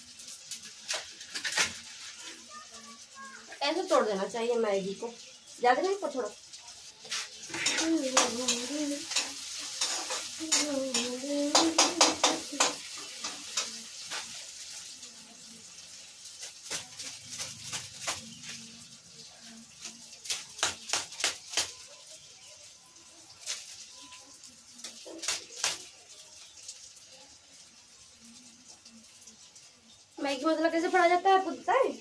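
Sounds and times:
food sizzling in a pan: 0.0 - 32.0
metal spoon scraping a pan: 7.0 - 14.8.

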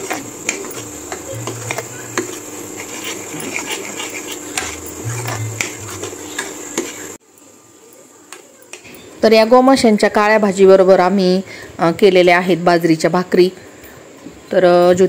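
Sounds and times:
ladle scraping metal pot: 0.0 - 7.2
steady hum: 0.0 - 7.7
paste frying in oil: 0.0 - 8.8.

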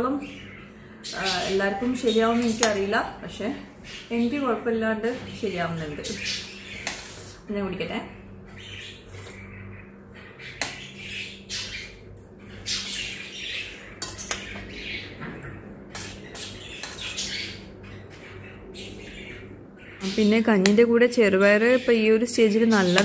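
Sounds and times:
steady low hum: 0.0 - 23.0
spoon clinking on steel plate: 14.0 - 14.4.

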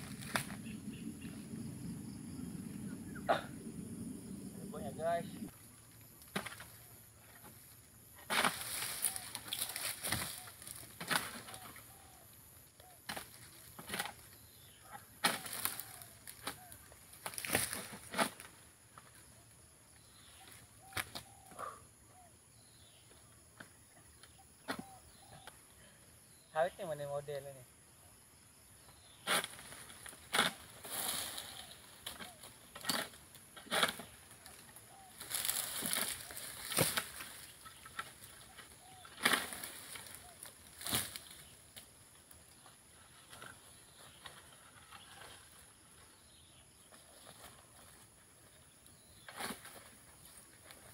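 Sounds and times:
palm fronds rustling: 0.0 - 1.4, 4.9 - 12.0, 13.0 - 14.4, 15.2 - 19.3, 29.2 - 46.2, 46.8 - 50.9
bird chirping: 0.4 - 5.5, 23.9 - 27.0
pole sickle cutting strokes: 29.2 - 34.2
sickle cutting strokes: 29.2 - 34.6, 35.2 - 41.4.

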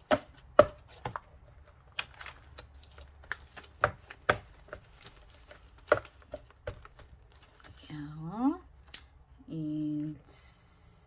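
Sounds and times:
paper book taps and knocks: 3.2 - 7.1.

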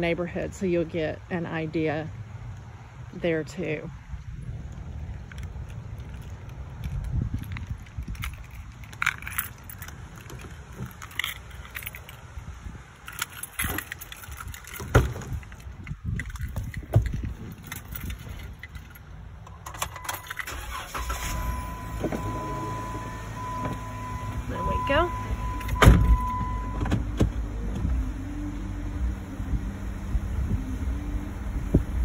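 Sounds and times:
car engine starting and running: 4.4 - 32.0
keys jangling: 5.3 - 20.6
car door thumps: 25.7 - 28.0.

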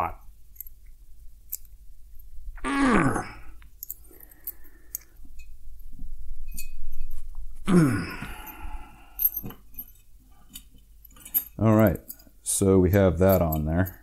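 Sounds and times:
small metallic clinks: 0.2 - 2.3, 3.6 - 7.5, 8.2 - 14.0
man groaning with effort: 2.6 - 3.6, 7.7 - 8.8.

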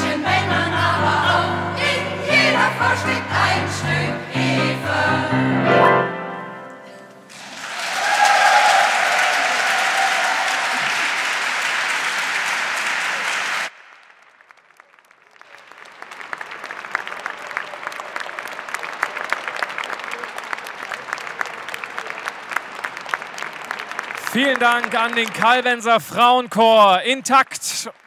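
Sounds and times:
audience applauding: 7.3 - 28.0.

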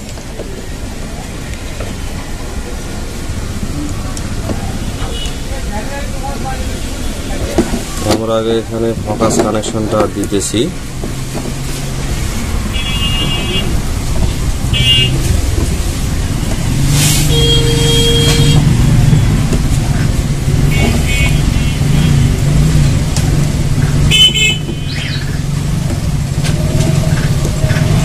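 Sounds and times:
traffic engine hum: 0.0 - 28.0
vehicle horn toots: 12.7 - 13.8, 14.7 - 15.3, 17.2 - 18.7, 20.6 - 22.2, 24.1 - 25.0.

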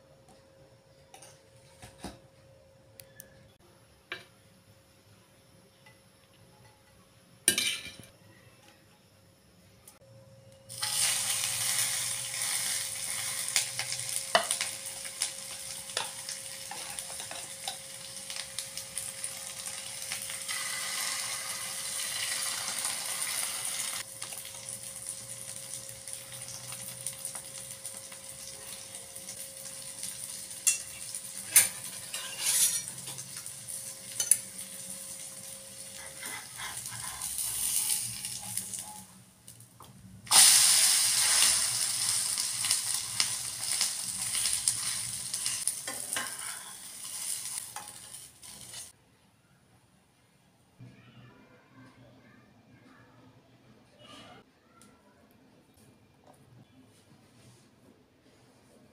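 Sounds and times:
frying sizzle in oil: 10.7 - 49.0
spatula scraping pan: 31.5 - 34.6, 35.8 - 38.6, 44.3 - 48.8.

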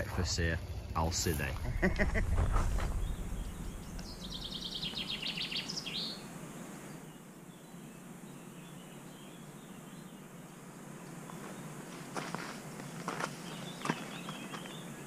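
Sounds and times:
faint outdoor background: 0.0 - 15.0
songbird trilling: 2.9 - 6.3.

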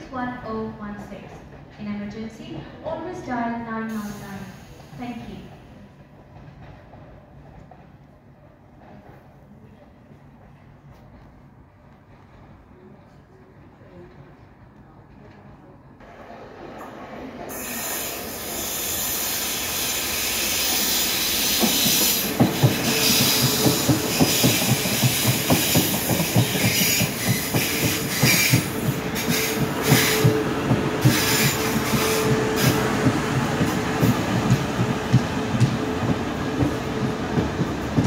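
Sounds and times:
train whine and hiss: 3.9 - 7.7, 16.0 - 38.0
train wheels clicking over rail joints: 18.6 - 38.0.

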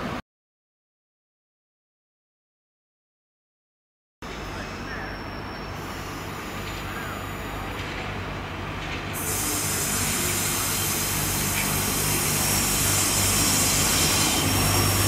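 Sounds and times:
diesel train engine humming: 4.2 - 15.0.

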